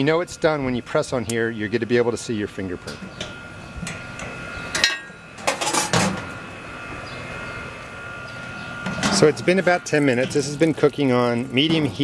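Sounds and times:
metal grill lid clanking shut: 0:02.8 - 0:06.3, 0:08.8 - 0:09.4.

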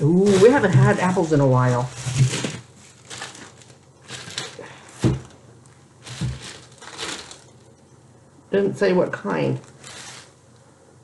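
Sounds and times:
plastic bags crinkling: 0:00.0 - 0:07.8, 0:09.4 - 0:10.6
dull thump: 0:05.0 - 0:05.3.

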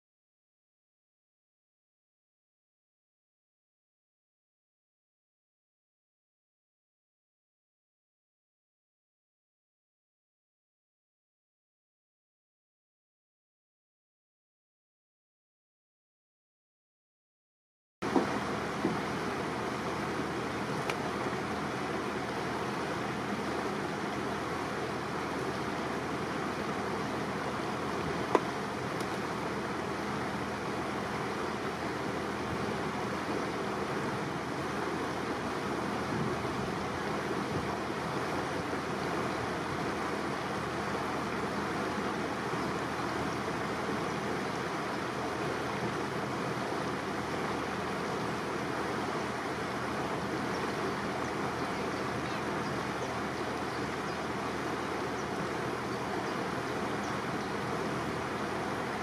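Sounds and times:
rush of water and wind: 0:18.0 - 0:59.0.

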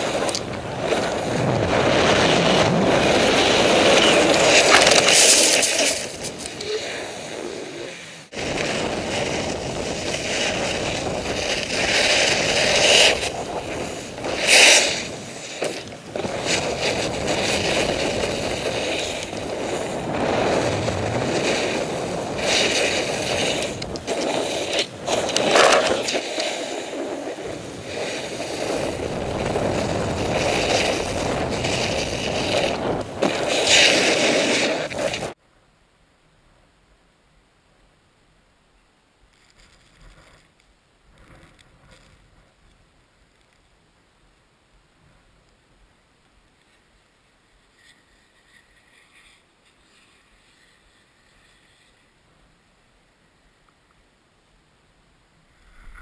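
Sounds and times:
snowboard scraping on snow: 0:00.0 - 0:35.4, 0:47.7 - 0:52.1
wind rushing over microphone: 0:00.0 - 0:35.4, 0:55.5 - 0:56.0.

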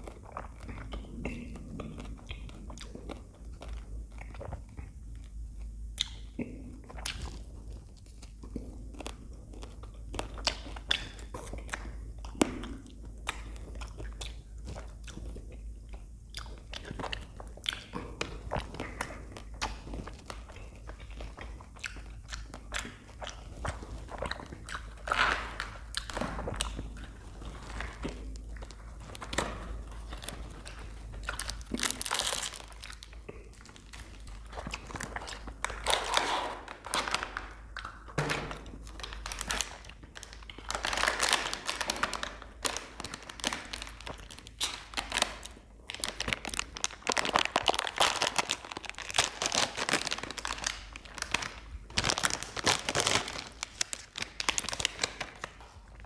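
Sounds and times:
crunchy chewing: 0:00.0 - 0:56.0
plastic wrappers crinkling: 0:23.6 - 0:56.0.

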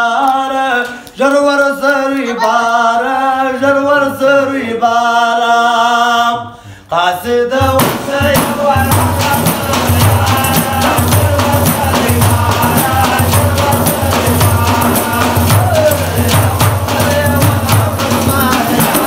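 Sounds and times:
man singing unaccompanied: 0:00.0 - 0:19.0
frame drum with jingles: 0:07.6 - 0:19.0.

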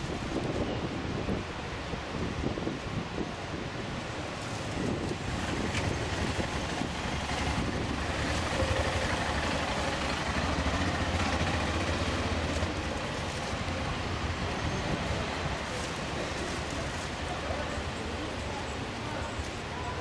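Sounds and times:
outdoor background rumble: 0:04.3 - 0:19.7.

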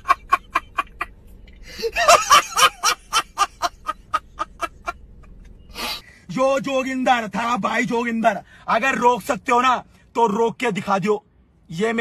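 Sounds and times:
man laughing hard: 0:00.0 - 0:01.1, 0:01.7 - 0:05.0.

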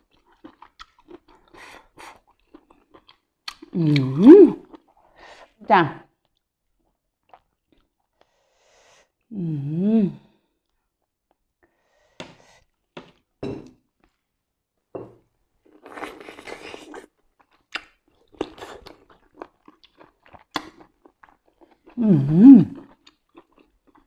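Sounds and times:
chewing wet clicks and crunches: 0:00.0 - 0:03.8, 0:06.2 - 0:08.2, 0:15.7 - 0:22.0, 0:22.8 - 0:24.0
person humming mmm: 0:03.8 - 0:04.6, 0:09.3 - 0:10.2, 0:22.0 - 0:22.8.

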